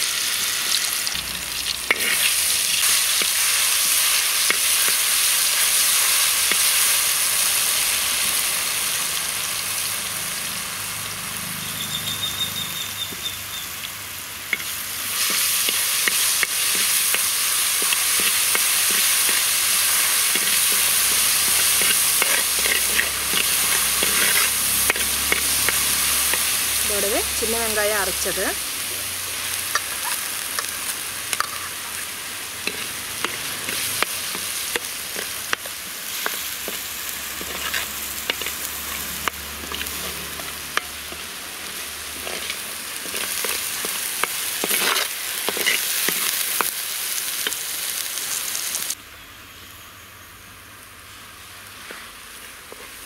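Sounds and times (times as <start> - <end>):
paste sizzling in hot oil: 0.0 - 49.0, 49.8 - 53.0
metal ladle scraping a pot: 21.4 - 25.5.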